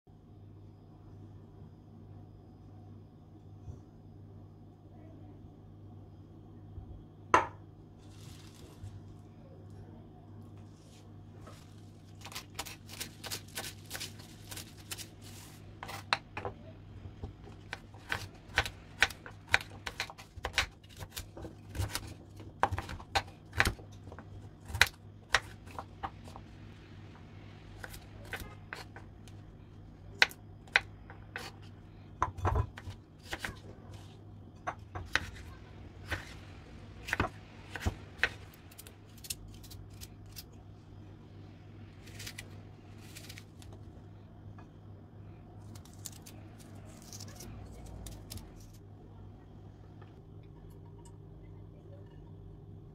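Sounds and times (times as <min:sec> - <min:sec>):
low steady hum: 0:00.1 - 0:52.9
knife chopping on wooden board: 0:17.2 - 0:23.8, 0:34.7 - 0:35.4.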